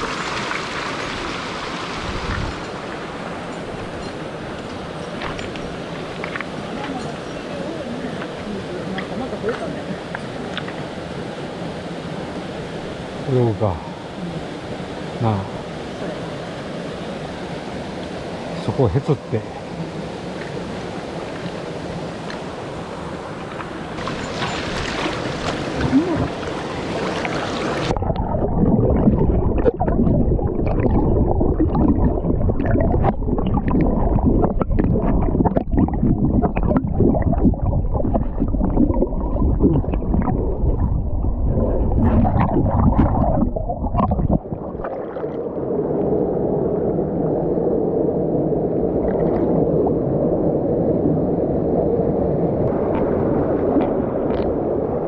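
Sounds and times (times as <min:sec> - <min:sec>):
stream water rushing: 0:00.0 - 0:51.2
muffled water gurgling and sloshing: 0:00.0 - 0:55.0
knocks and splashes: 0:24.0 - 0:45.0.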